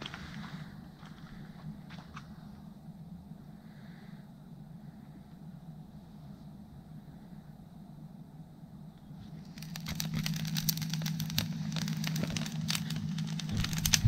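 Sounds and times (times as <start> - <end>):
campfire crackling and snapping: 9.4 - 14.0.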